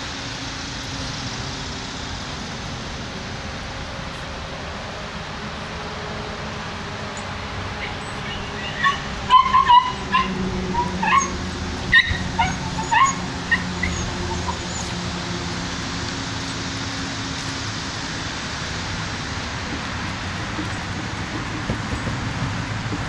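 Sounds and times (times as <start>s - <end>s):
dogs whining and yipping: 7.8s - 15.0s.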